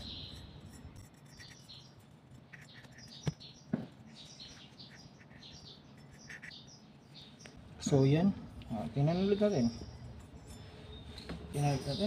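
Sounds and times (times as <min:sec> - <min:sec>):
faint bird chirps: 0:00.0 - 0:07.6.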